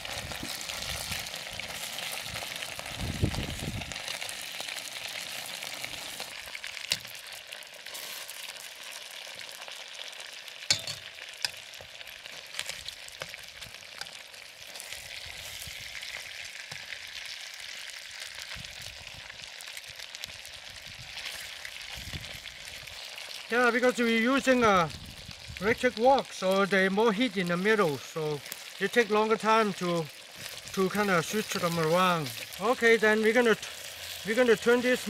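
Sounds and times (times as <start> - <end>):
chicken sizzling in hot oil: 0.0 - 35.0
metal tongs clicking on pan: 10.7 - 11.6.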